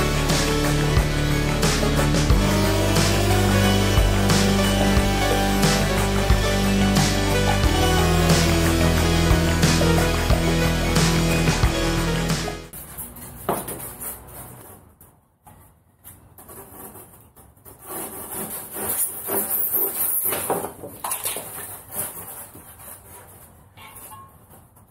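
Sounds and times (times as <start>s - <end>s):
blade cutting through foam: 0.0s - 11.6s, 16.5s - 20.5s
foam boards rubbing and knocking: 0.0s - 24.9s.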